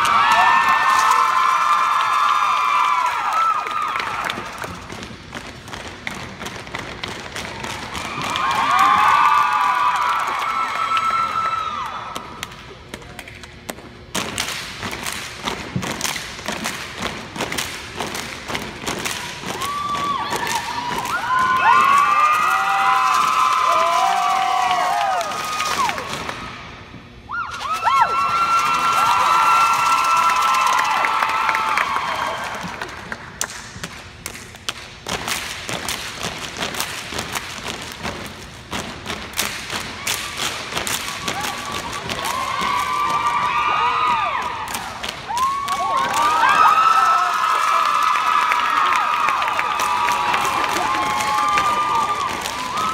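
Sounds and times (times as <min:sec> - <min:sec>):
crowd screaming: 0:00.0 - 0:04.6, 0:07.8 - 0:12.2, 0:19.3 - 0:26.2, 0:27.3 - 0:32.8, 0:41.1 - 0:52.9
stomps and hand claps: 0:12.1 - 0:26.5, 0:29.7 - 0:52.9
hand claps: 0:29.5 - 0:38.1.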